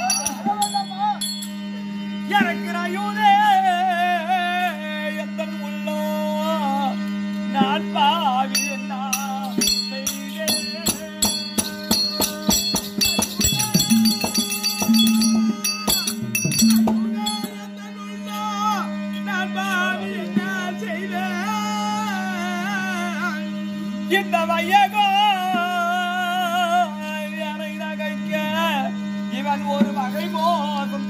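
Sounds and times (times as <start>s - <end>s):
jingling: 0.0s - 1.7s, 8.5s - 17.7s
steady drone: 0.0s - 31.0s
person singing ornamented melody: 8.1s - 18.3s
quick percussion strokes: 8.6s - 17.7s.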